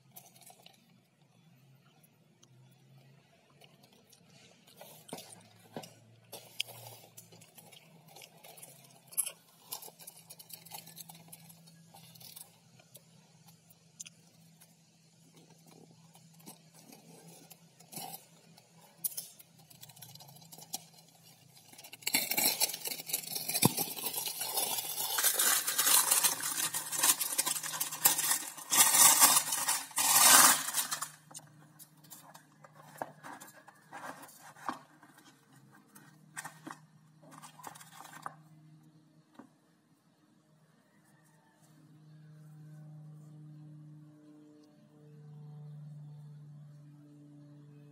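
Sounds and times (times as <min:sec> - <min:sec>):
plastic wrap crinkling and tearing: 0:19.7 - 0:31.4.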